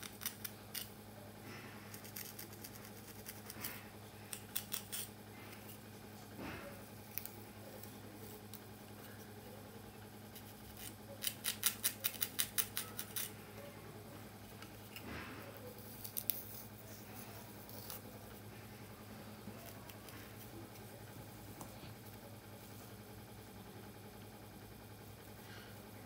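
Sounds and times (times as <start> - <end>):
comb scratching through hair: 1.9 - 3.7.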